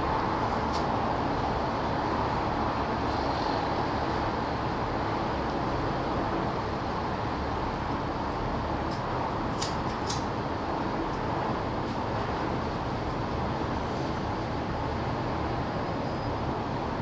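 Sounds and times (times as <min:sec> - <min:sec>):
distant city traffic hum: 0:00.0 - 0:17.0.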